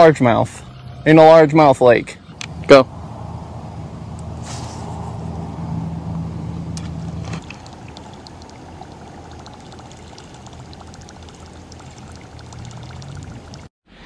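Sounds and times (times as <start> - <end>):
low motor hum: 2.2 - 13.7
water lapping and trickling: 7.1 - 13.7
faint small ticks: 7.4 - 13.7.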